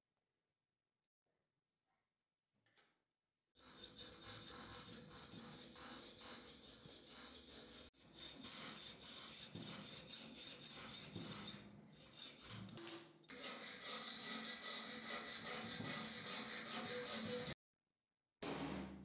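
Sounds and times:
metal file rasping: 0:03.6 - 0:17.6.

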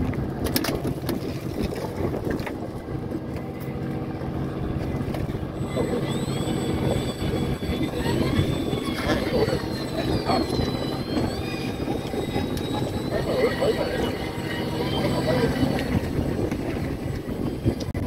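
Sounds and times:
boat engine humming: 0:00.0 - 0:18.0
faint rising high whine: 0:03.6 - 0:17.8.

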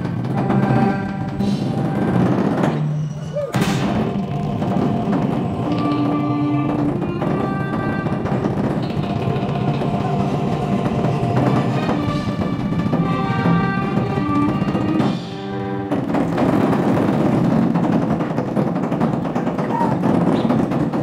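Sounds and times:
drums and percussion: 0:00.0 - 0:21.0
stage-show music: 0:00.3 - 0:16.8.

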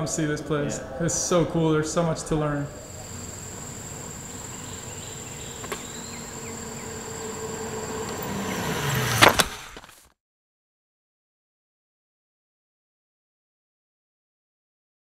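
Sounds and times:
insects trilling: 0:00.1 - 0:09.2
bicycle passing by: 0:02.5 - 0:10.1.

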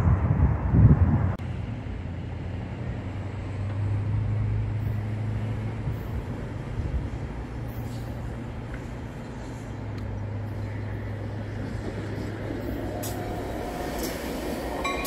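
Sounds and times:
wind buffeting microphone: 0:00.0 - 0:01.4
diesel locomotive droning: 0:00.0 - 0:15.0
faint freeway traffic: 0:00.0 - 0:15.0.

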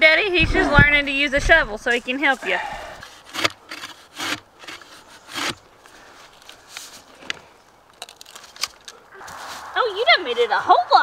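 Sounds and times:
post-hole digger scraping dirt: 0:00.3 - 0:06.4.

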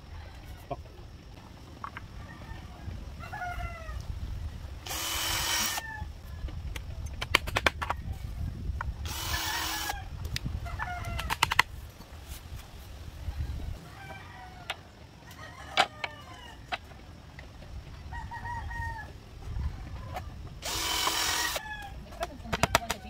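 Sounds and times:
cordless drill drilling: 0:04.9 - 0:05.8, 0:09.0 - 0:10.0, 0:20.6 - 0:21.6
sharp clicks: 0:06.7 - 0:08.0, 0:08.8 - 0:11.7.

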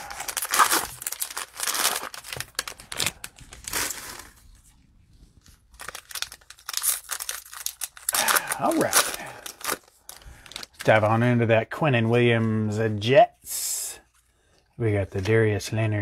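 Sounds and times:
plastic wrappers crinkling and tearing: 0:00.0 - 0:04.8, 0:05.4 - 0:11.2.

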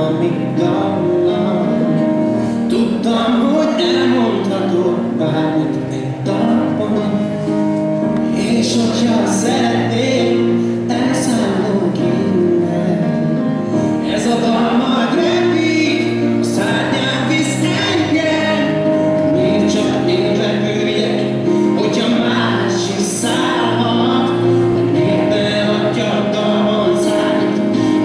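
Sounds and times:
choir singing in harmony: 0:08.2 - 0:28.0.

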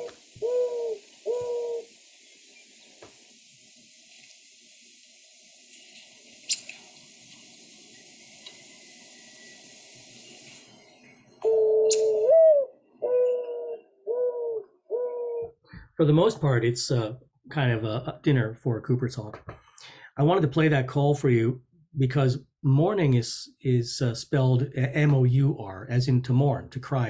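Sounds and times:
mourning dove cooing: 0:00.0 - 0:02.0, 0:11.4 - 0:15.6.

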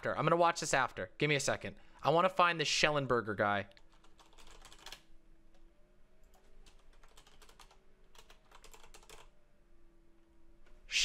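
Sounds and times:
typing on computer keyboard: 0:03.8 - 0:05.1, 0:06.3 - 0:09.3.

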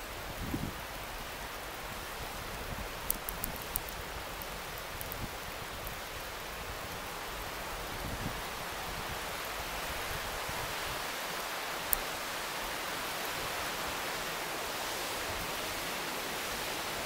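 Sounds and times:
faint sharp ticks: 0:03.1 - 0:05.2.

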